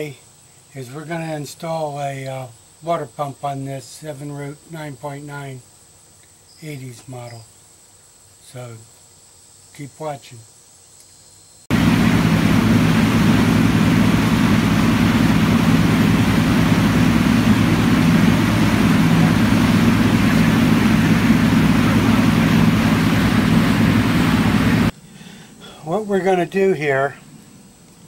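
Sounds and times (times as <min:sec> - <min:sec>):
boat engine running: 0:11.7 - 0:24.9
water rushing: 0:11.7 - 0:24.9.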